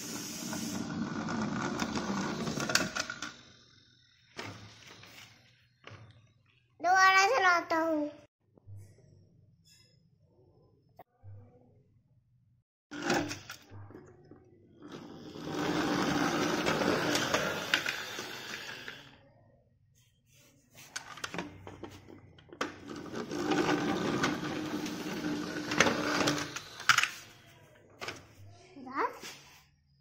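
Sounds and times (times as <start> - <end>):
toy car wheels rattling on wood: 15.3 - 19.0.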